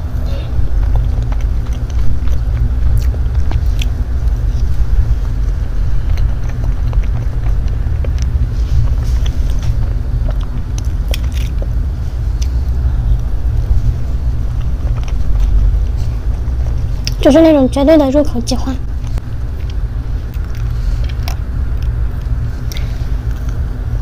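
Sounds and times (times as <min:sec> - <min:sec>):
steady low rumble: 0:00.0 - 0:24.0
soft mouth sounds eating: 0:00.2 - 0:17.2.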